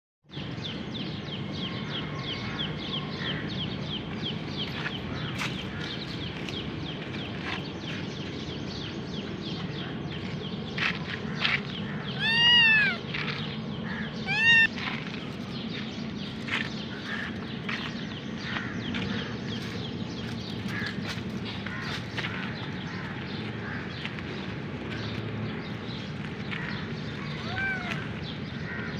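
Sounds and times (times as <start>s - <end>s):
low background rumble: 0.6s - 28.9s
kitten meowing: 12.2s - 13.0s, 14.2s - 14.7s, 27.3s - 28.1s.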